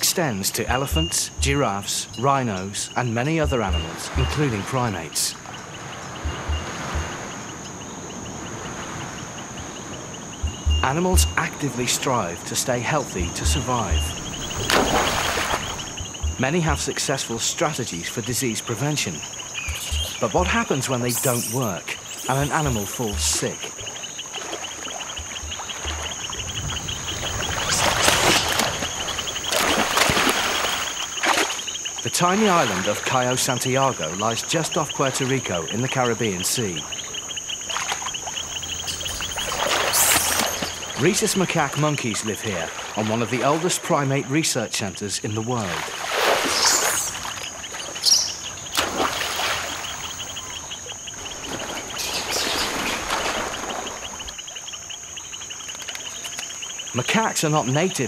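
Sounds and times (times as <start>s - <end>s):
water splashing: 0.0s - 54.8s
insects chirping: 0.0s - 58.0s
sharp slaps on water: 13.4s - 16.8s, 27.6s - 31.6s, 48.7s - 49.7s.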